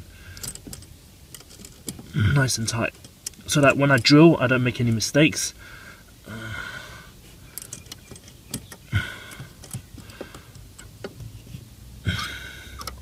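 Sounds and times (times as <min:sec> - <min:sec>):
clamp clicking and ticking: 0:12.8 - 0:13.0.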